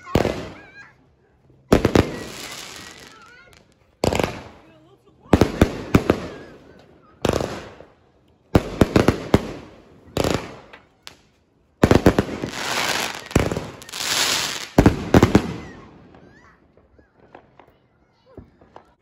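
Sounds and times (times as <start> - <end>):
fireworks sharp bangs: 0.0 - 0.9, 1.7 - 4.7, 5.3 - 11.2, 11.8 - 19.0
fireworks crackling hiss: 1.7 - 4.6, 8.6 - 15.8.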